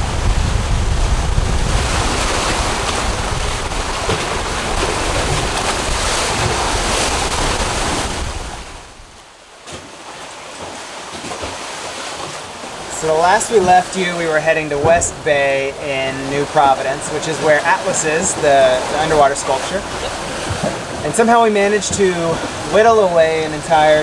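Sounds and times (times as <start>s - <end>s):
wind buffeting microphone: 0.0s - 9.2s
sea water rushing and splashing: 0.0s - 24.0s.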